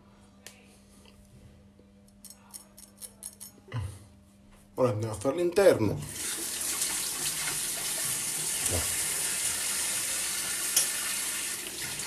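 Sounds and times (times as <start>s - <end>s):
tap water running into sink: 6.0s - 12.0s.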